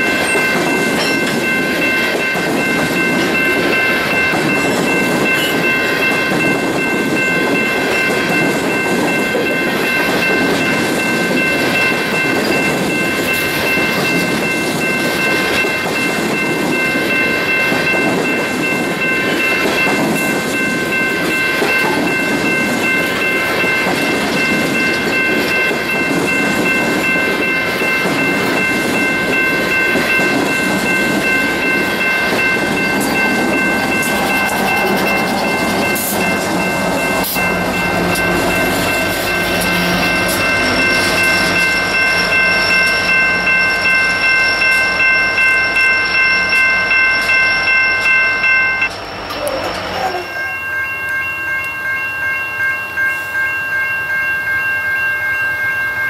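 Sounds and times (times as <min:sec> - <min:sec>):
train wheels clattering on rail: 0:00.0 - 0:47.4.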